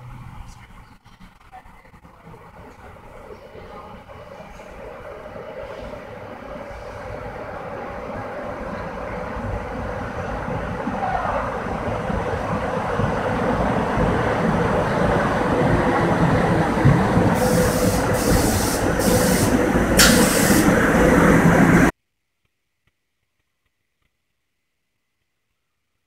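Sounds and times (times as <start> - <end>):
train wheels rumbling: 0.0 - 21.9
air hisses: 17.4 - 21.4.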